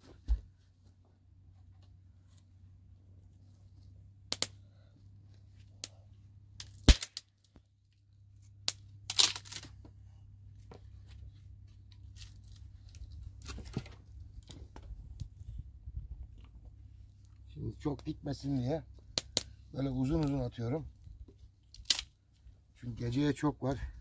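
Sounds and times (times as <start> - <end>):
dry branches cracking: 6.6 - 7.6, 8.7 - 9.8, 11.9 - 14.6, 19.0 - 20.4, 21.6 - 22.2.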